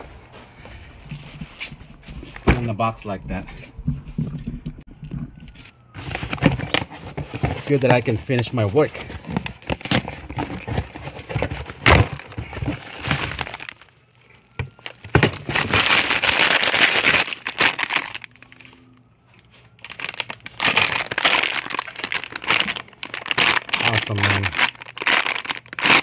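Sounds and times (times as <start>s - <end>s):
plastic packaging crinkling: 5.8s - 26.0s
bubble wrap snapping: 9.5s - 10.7s, 14.8s - 18.4s, 19.8s - 26.0s.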